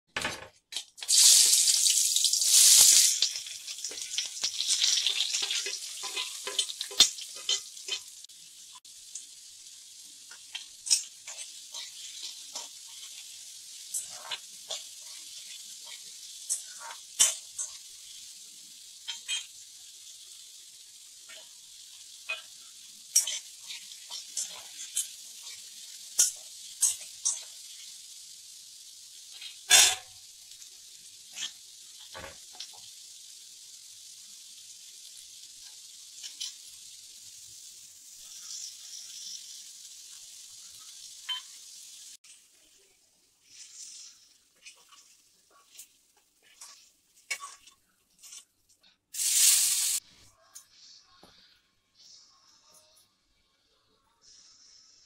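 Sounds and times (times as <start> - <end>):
onions sizzling in hot oil: 0.7 - 52.6, 54.2 - 55.0
metal spatula scraping a pan: 2.5 - 8.2, 10.3 - 18.1, 19.0 - 19.5, 22.2 - 27.9, 29.3 - 30.2, 31.3 - 32.7, 38.2 - 39.6, 43.4 - 48.5.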